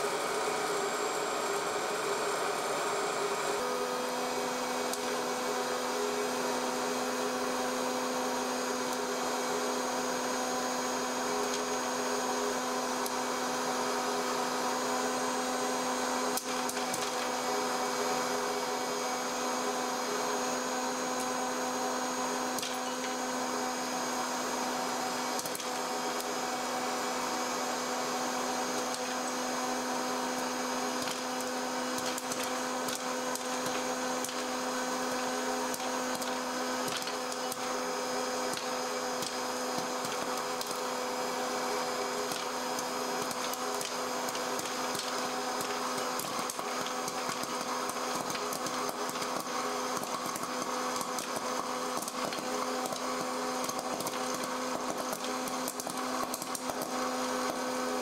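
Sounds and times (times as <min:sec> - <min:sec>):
popcorn machine fan hum: 0:00.0 - 0:58.0
popcorn kernels popping: 0:16.3 - 0:17.4, 0:22.5 - 0:23.2, 0:25.2 - 0:26.4, 0:28.7 - 0:29.5, 0:30.2 - 0:58.0.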